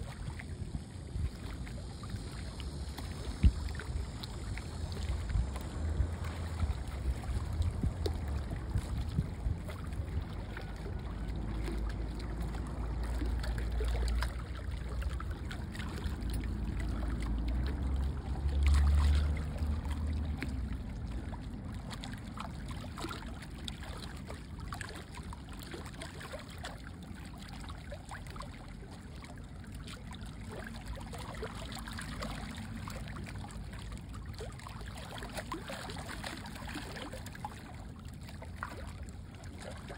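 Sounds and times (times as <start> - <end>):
wind rumbling on microphone: 0.0 - 25.0
seawater lapping and splashing: 0.0 - 39.9.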